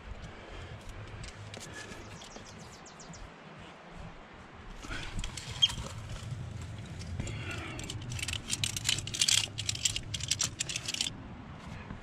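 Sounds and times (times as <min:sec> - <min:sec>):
climbing hardware jingling: 0:04.8 - 0:11.1.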